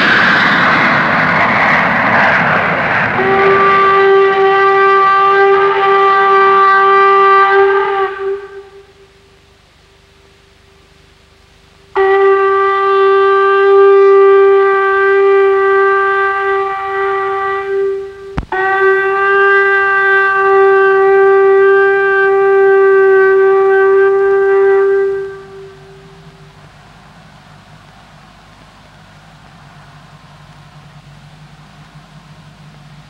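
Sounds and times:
horn long steady note: 0:00.0 - 0:33.0.

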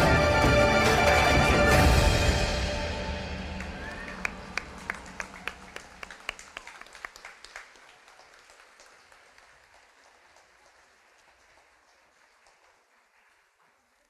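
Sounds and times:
stage closing music: 0:00.0 - 0:06.4
audience clapping: 0:03.4 - 0:14.0.

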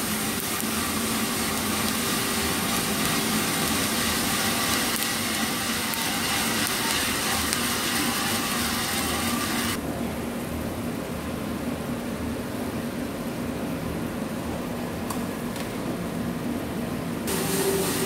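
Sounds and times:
coffee beans pouring rattling hiss: 0:00.0 - 0:09.8, 0:17.3 - 0:18.0
roaster and fan machine noise: 0:00.0 - 0:18.0.

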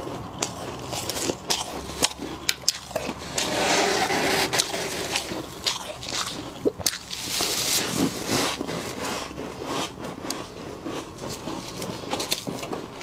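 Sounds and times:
gloved hands scraping frost: 0:03.2 - 0:05.4, 0:07.1 - 0:13.0.

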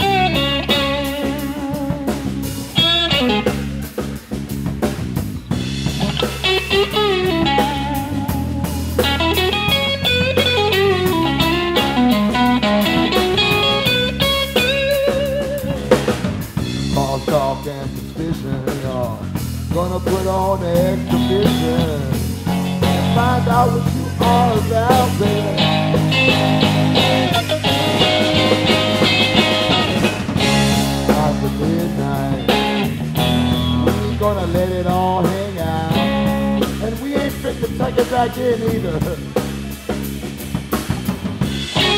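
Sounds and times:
bass guitar: 0:00.0 - 0:41.9
drum kit: 0:00.0 - 0:41.9
electric guitar lead with bent notes: 0:00.0 - 0:41.9.

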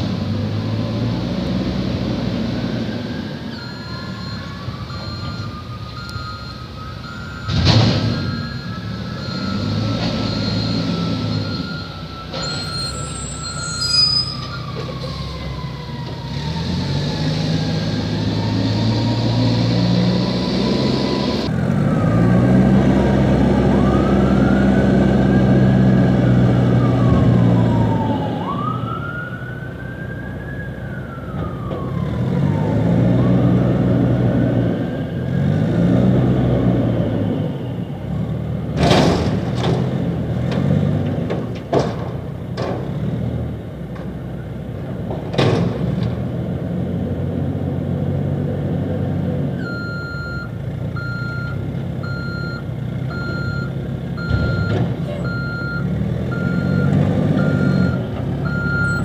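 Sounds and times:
diesel engine revving: 0:00.0 - 0:59.0
reverse beeper: 0:03.0 - 0:14.6
high squeal: 0:03.0 - 0:15.2.

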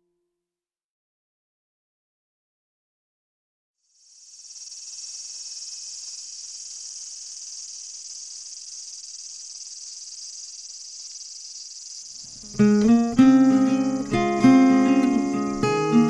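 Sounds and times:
crickets chirring: 0:03.8 - 0:16.0.

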